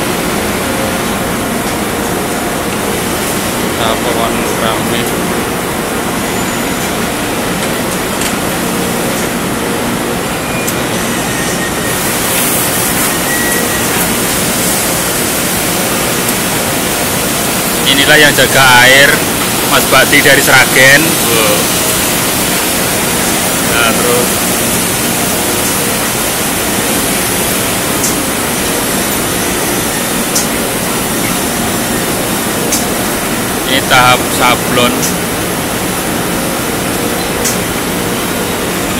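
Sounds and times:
machine motors and conveyor running: 0.0 - 38.9.

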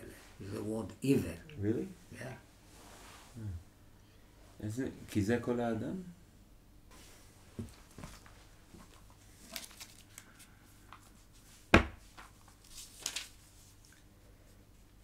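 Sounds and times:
book pages rustling: 7.6 - 14.0.

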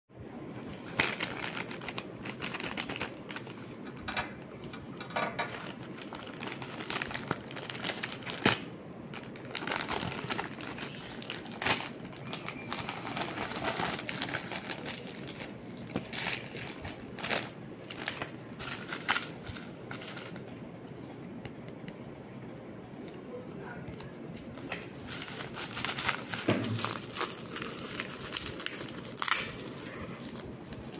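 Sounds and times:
bubble wrap crackling: 0.7 - 3.9, 5.5 - 20.6, 24.0 - 30.9
plastic mailer bag crinkling: 0.8 - 3.8, 5.5 - 20.5, 24.4 - 30.9.

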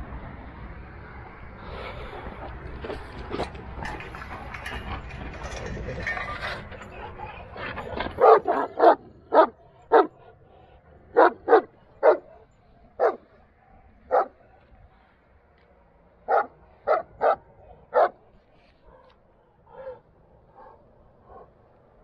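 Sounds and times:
dog barking: 8.1 - 10.2, 11.1 - 13.3, 14.1 - 14.5, 16.3 - 18.2, 18.9 - 21.6.

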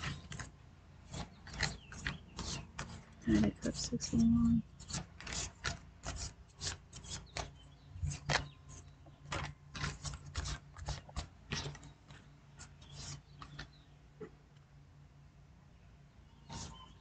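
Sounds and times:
cards being shuffled: 1.1 - 4.2, 4.8 - 13.7.

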